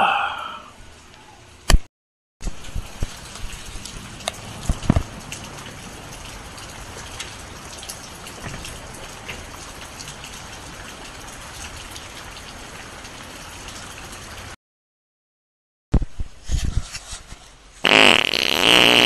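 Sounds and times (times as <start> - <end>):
raindrops ticking on surfaces: 2.4 - 14.6
steady rain falling: 2.4 - 14.6.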